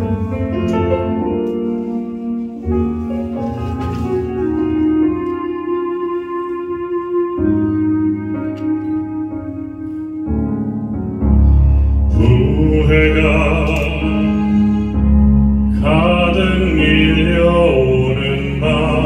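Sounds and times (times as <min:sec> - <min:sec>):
instrumental accompaniment: 0:00.0 - 0:19.0
deep bass: 0:10.4 - 0:19.0
man singing a slow ballad: 0:12.1 - 0:15.0, 0:15.7 - 0:19.0.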